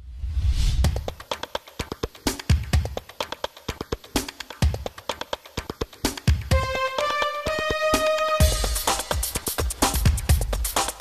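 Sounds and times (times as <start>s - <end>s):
held synth notes rising in pitch: 6.5s - 9.2s
electronic theme music: 6.5s - 11.0s.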